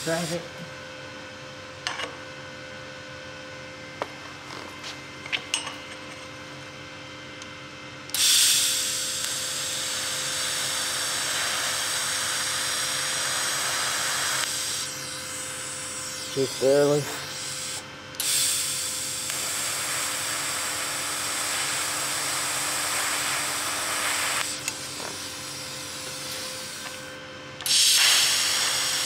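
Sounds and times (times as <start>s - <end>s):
welding arc hissing: 0.0s - 0.5s, 8.1s - 29.0s
steady background hum: 0.0s - 29.0s.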